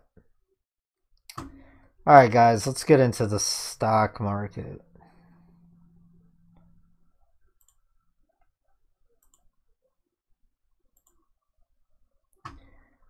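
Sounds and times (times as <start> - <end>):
computer mouse clicking: 11.0 - 11.2.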